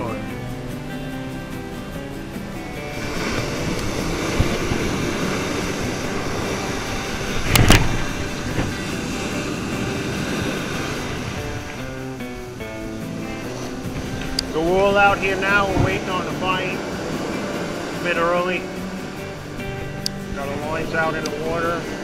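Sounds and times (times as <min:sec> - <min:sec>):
ocean surf breaking: 0:00.0 - 0:22.0
wind on microphone: 0:00.0 - 0:22.0
loud thump: 0:07.5 - 0:08.7.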